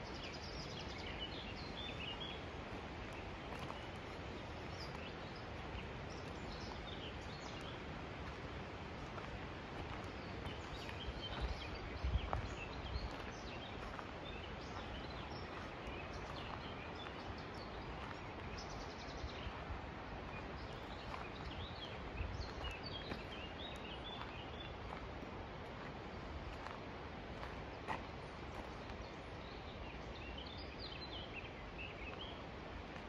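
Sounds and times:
small birds chirping: 0:00.0 - 0:33.0
steady background hiss: 0:00.0 - 0:33.0.

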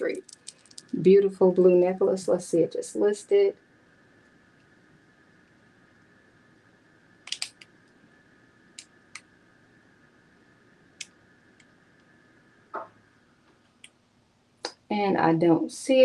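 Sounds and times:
faint steady hum: 0:00.0 - 0:16.0
computer keys clicking: 0:07.2 - 0:07.7.

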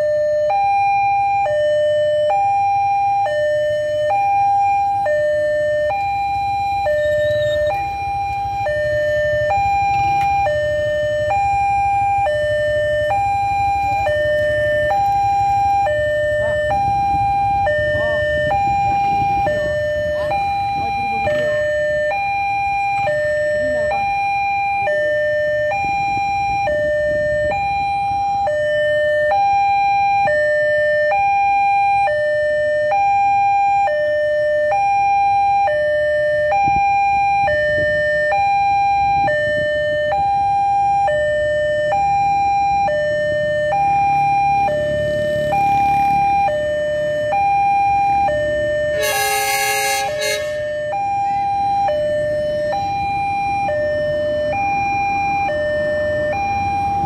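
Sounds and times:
level crossing two-tone alarm: 0:00.0 - 0:57.0
road traffic rumbling: 0:00.0 - 0:57.0
loud horn blast: 0:48.9 - 0:50.7.

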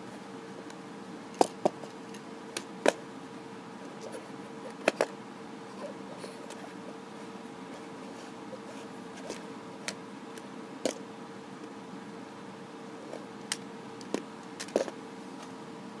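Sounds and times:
faint hum: 0:00.0 - 0:16.0
plastic bricks clicking: 0:13.5 - 0:15.0.

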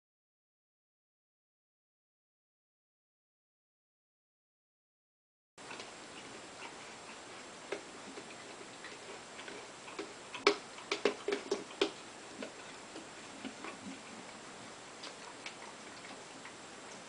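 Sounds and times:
dog licking and pawing jar: 0:06.6 - 0:14.3.

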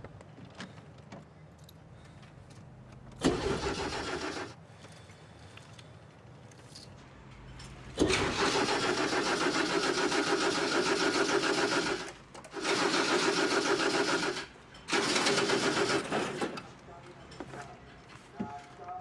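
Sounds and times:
car starter motor cranking: 0:03.2 - 0:04.6, 0:08.0 - 0:16.7.

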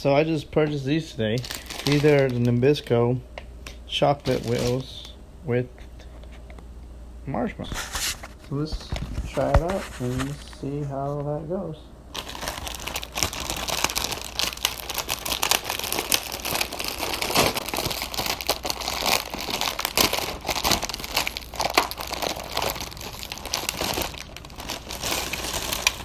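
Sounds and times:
plastic package crinkling: 0:01.3 - 0:02.9, 0:04.1 - 0:05.2, 0:12.1 - 0:26.0.

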